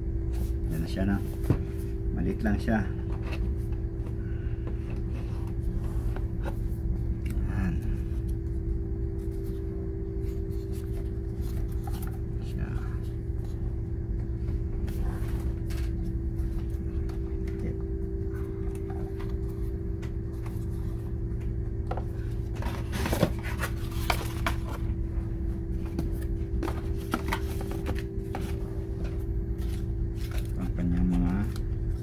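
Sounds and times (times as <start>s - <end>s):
steady low hum: 0.0s - 32.0s
cardboard packaging handling: 9.1s - 12.6s, 21.9s - 31.7s.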